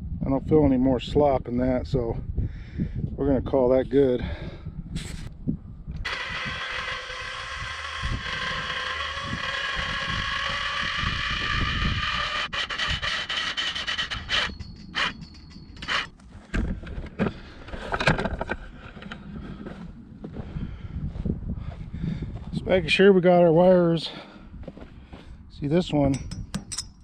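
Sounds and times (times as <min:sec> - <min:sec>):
wind gusts on microphone: 0:00.0 - 0:13.2, 0:14.2 - 0:26.9
mechanical whine: 0:05.9 - 0:16.2.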